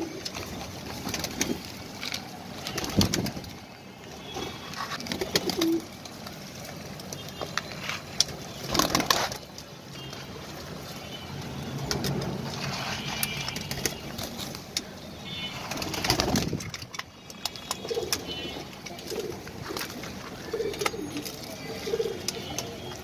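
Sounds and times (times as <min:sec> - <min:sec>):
pigeons cooing: 0:00.0 - 0:01.7, 0:04.4 - 0:06.0, 0:17.7 - 0:23.0
pigeons pecking clicks: 0:00.0 - 0:14.9, 0:15.5 - 0:23.0
wings flapping and brushing: 0:00.0 - 0:23.0.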